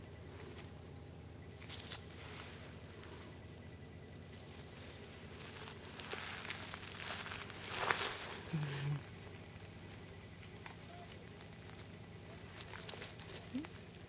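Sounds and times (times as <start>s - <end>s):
faint rustling: 1.5s - 14.0s
person humming: 8.5s - 9.0s.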